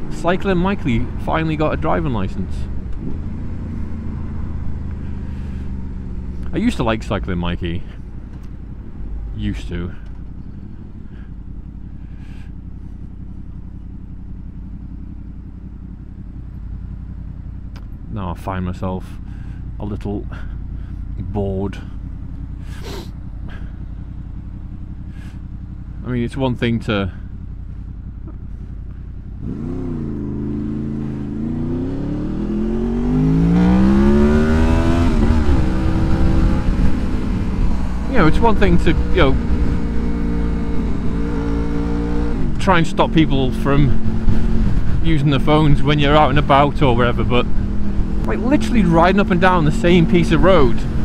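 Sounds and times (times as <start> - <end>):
motorcycle engine running: 0.0 - 51.0.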